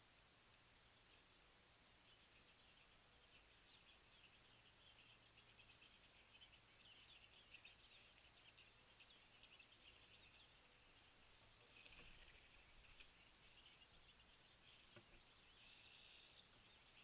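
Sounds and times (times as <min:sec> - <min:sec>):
small birds twittering: 0:00.0 - 0:17.0.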